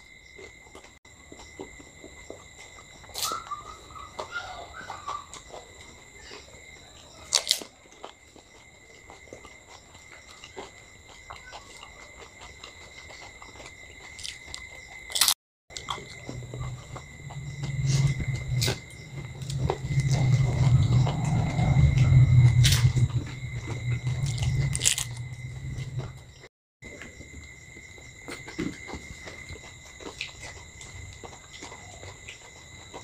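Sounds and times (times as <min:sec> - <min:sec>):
people chewing and crunching: 0:00.0 - 0:33.0
faint high whine: 0:15.8 - 0:26.5.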